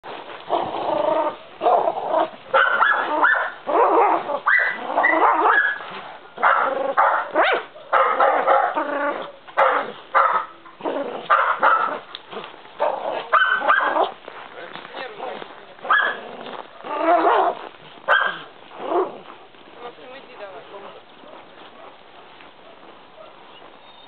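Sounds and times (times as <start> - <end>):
young dog barking: 1.6 - 12.1, 12.8 - 14.2, 15.8 - 16.3, 17.0 - 19.2.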